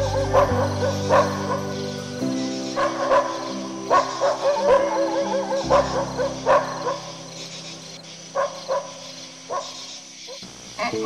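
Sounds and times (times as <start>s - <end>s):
background music: 0.0s - 9.7s
dog yipping and yelping: 0.2s - 1.8s, 2.8s - 7.3s.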